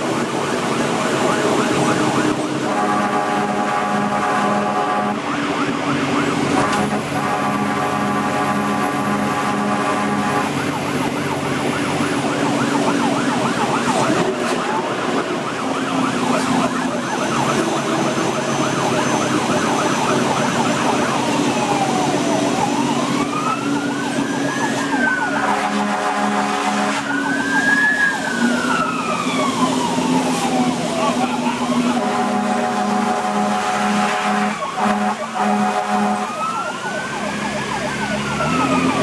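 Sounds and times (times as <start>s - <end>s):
engine drone: 0.0s - 39.0s
fire engine siren: 0.0s - 39.0s
horn blast: 2.2s - 5.6s, 6.4s - 11.1s, 24.7s - 27.4s, 31.1s - 36.6s.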